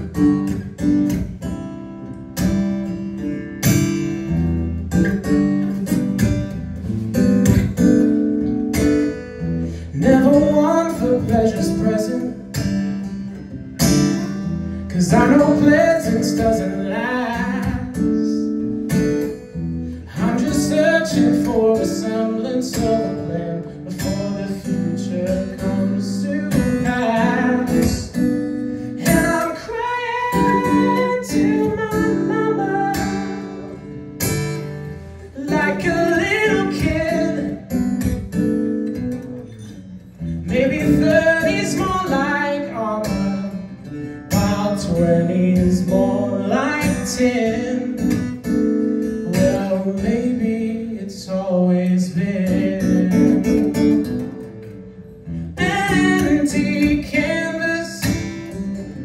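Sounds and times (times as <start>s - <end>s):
acoustic guitar strumming: 0.0s - 59.0s
man singing: 9.8s - 12.7s, 14.9s - 18.7s, 20.0s - 33.9s, 35.2s - 37.8s, 40.4s - 54.2s, 55.5s - 59.0s.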